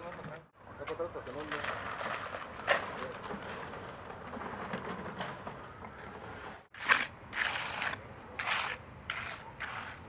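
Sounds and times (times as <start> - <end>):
shovel working concrete: 6.1 - 10.0
trowel scraping concrete: 6.2 - 10.0.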